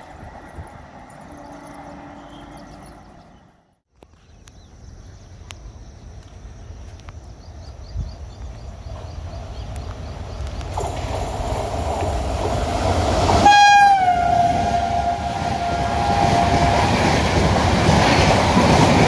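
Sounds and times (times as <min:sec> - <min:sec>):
wind rumble on microphone: 0:07.4 - 0:10.8.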